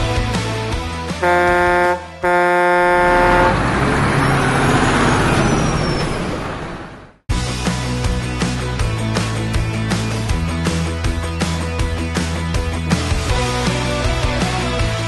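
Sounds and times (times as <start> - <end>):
electronic toy truck horn: 1.2 - 3.6.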